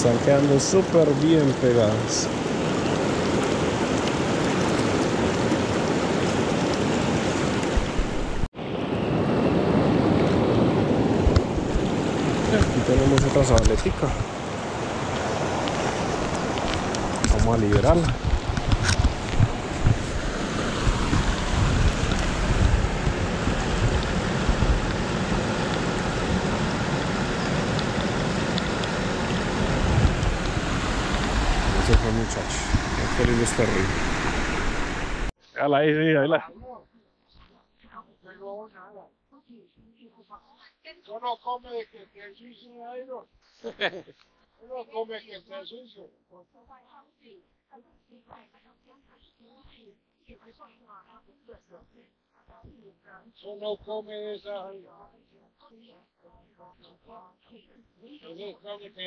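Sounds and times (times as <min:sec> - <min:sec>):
river rushing over stones: 0:00.0 - 0:35.3
wind rumble on microphone: 0:02.3 - 0:35.3.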